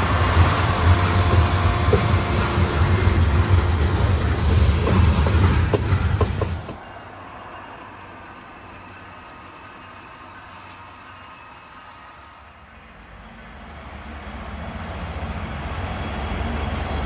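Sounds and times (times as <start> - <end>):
train rumbling past: 0.0 - 17.0
train wheel clicks: 0.3 - 6.9.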